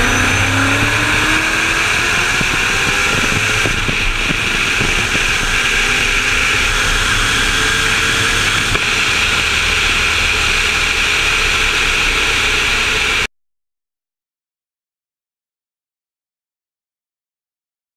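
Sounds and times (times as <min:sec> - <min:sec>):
wind rushing: 0:00.0 - 0:10.5
car engine running: 0:00.0 - 0:13.3.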